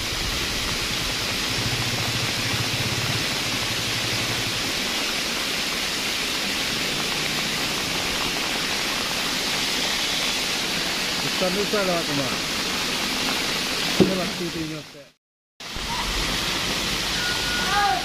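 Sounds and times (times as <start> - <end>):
low engine hum: 0.0 - 9.3
heavy rain hiss: 0.0 - 18.0.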